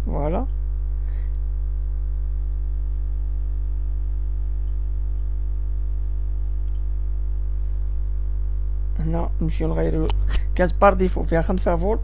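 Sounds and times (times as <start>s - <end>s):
electrical mains hum: 0.0s - 12.0s
faint clicks: 6.6s - 6.9s.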